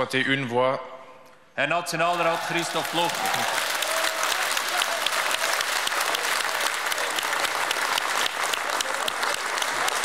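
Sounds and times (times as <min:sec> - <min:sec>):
crowd applauding: 0:02.1 - 0:10.0.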